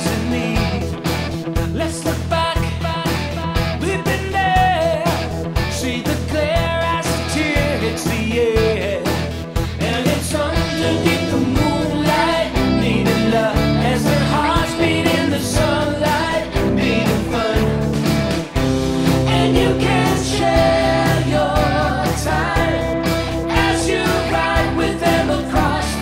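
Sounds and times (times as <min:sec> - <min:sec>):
rock song: 0:00.0 - 0:26.0
steady drum beat: 0:06.6 - 0:26.0.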